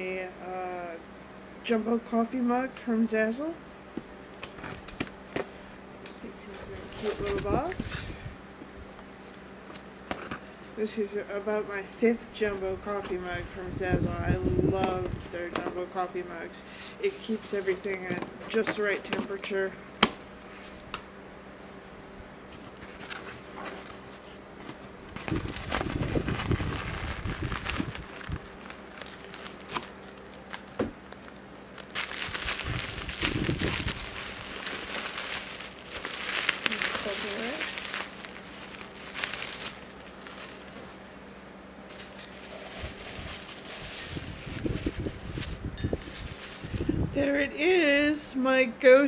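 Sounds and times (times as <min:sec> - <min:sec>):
packaging crinkling and rustling: 0:04.4 - 0:08.0, 0:22.5 - 0:47.0.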